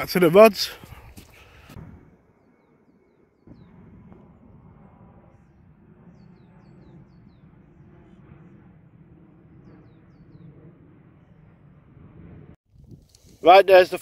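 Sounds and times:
steady low rumble: 3.4 - 13.5
small birds chirping: 6.1 - 7.7, 9.6 - 10.7.

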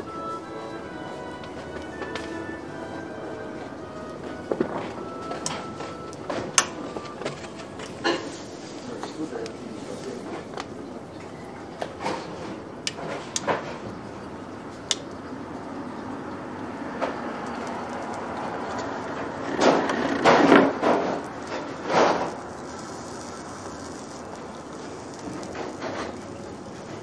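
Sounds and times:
rustling noises: 0.2 - 13.9, 17.6 - 27.0
vegetables sizzling on grill: 5.0 - 10.4, 21.1 - 27.0.

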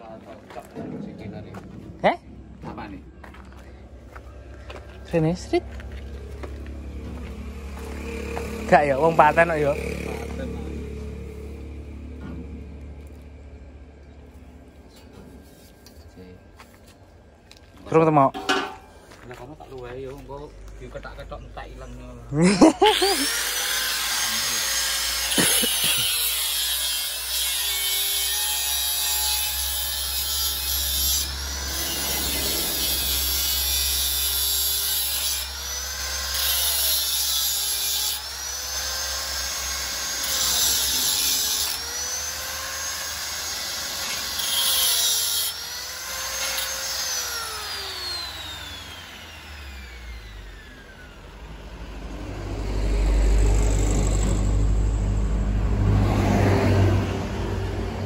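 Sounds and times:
low engine rumble: 0.0 - 17.5, 30.6 - 36.0, 49.3 - 58.0
angle grinder cutting steel: 7.2 - 13.2, 22.6 - 56.2.

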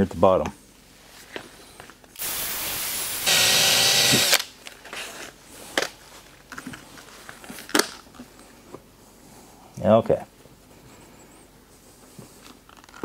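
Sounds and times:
power drill whining: 2.2 - 4.4.

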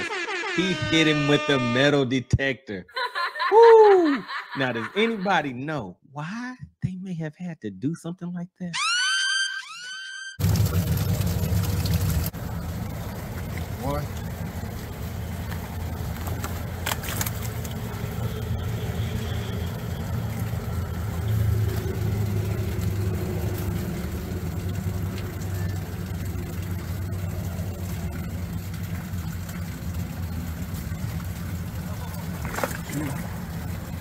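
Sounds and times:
engine idling: 10.4 - 34.0.

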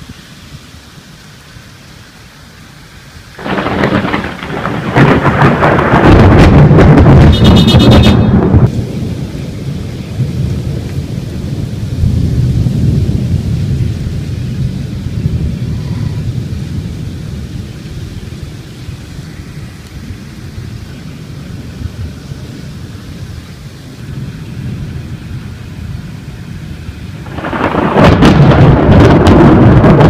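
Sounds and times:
steady rain: 0.0 - 30.0
thunderclap with low rumble: 3.3 - 30.0.

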